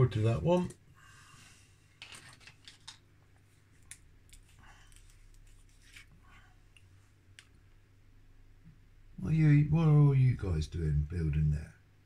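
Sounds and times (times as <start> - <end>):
faint clicks and rustles of small tools: 1.8 - 7.5.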